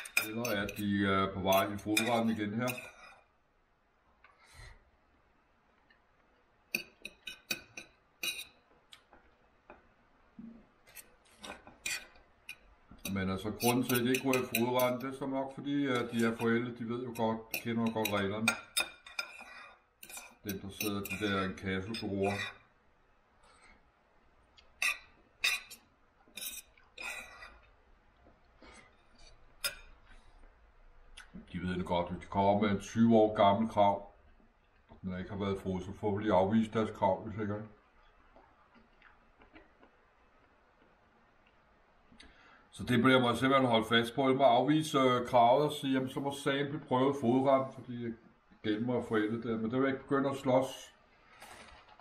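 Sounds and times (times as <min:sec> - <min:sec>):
cutlery clinking on plate: 0:00.0 - 0:00.9, 0:01.5 - 0:03.3, 0:06.7 - 0:08.6, 0:10.9 - 0:15.1, 0:17.2 - 0:22.6.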